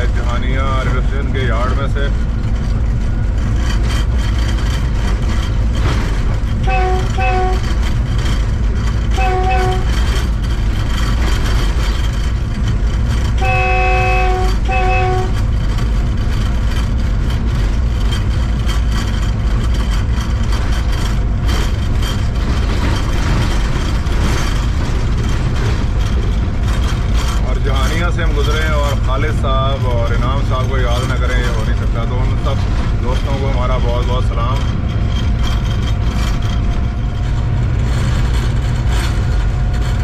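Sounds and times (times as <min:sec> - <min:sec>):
train rumbling at speed: 0:00.0 - 0:40.0
train horn: 0:06.6 - 0:07.7, 0:09.1 - 0:10.0, 0:13.4 - 0:15.4.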